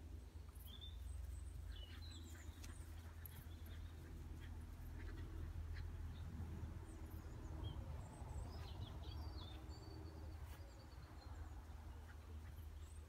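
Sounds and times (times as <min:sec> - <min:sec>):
low outdoor rumble: 0:00.0 - 0:13.0
bird chirps: 0:00.6 - 0:04.1.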